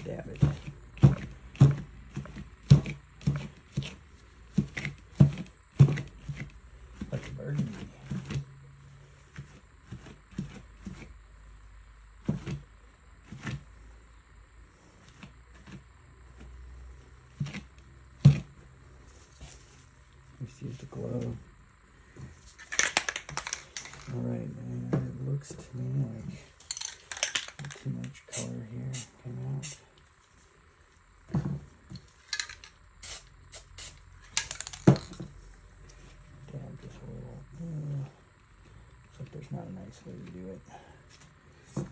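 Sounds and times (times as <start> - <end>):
low steady hum: 0.0 - 41.9
aerosol spray can hissing: 28.3 - 29.8, 33.0 - 35.1.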